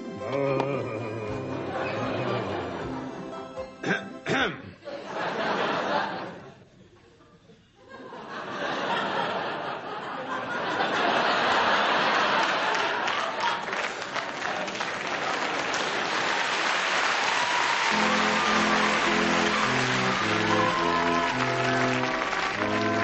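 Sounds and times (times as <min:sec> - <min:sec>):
musical notes: 0:00.0 - 0:04.4, 0:17.9 - 0:23.0
audience applauding: 0:11.2 - 0:23.0.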